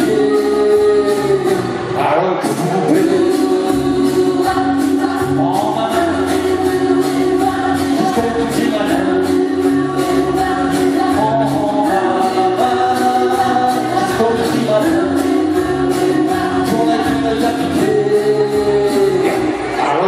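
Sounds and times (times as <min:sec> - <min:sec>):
people singing together: 0:00.0 - 0:20.0.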